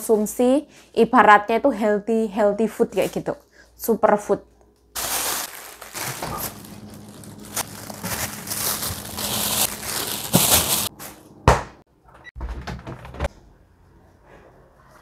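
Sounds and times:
plastic bags rustling: 5.0s - 11.0s.

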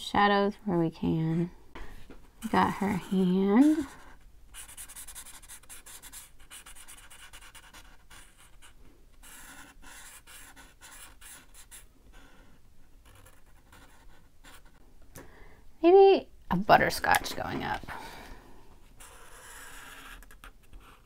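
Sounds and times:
marker scratching on paper: 2.4s - 14.8s, 19.0s - 21.0s.

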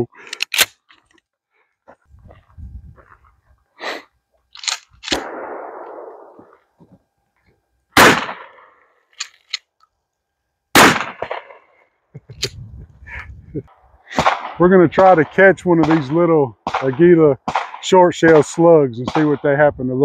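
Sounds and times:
shotgun shots: 5.0s - 6.5s, 8.0s - 8.6s, 10.8s - 11.6s, 14.1s - 18.5s, 19.1s - 19.5s.

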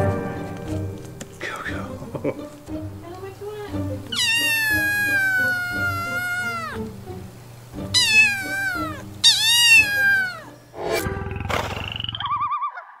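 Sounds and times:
soft background music: 0.0s - 11.4s
kitten meowing: 4.1s - 6.8s, 7.8s - 10.6s.

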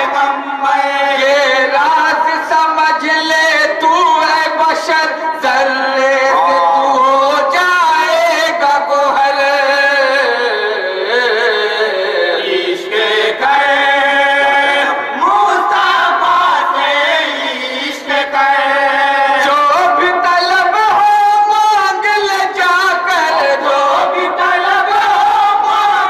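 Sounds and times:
men chanting in unison: 0.0s - 26.0s.

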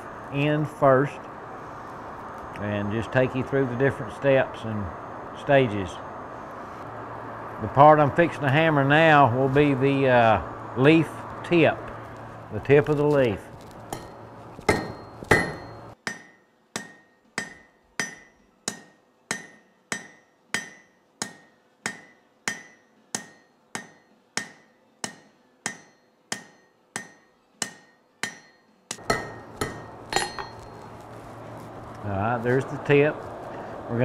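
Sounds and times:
low hum: 0.0s - 16.0s, 29.0s - 34.0s
hammer striking on anvil: 13.9s - 30.8s.

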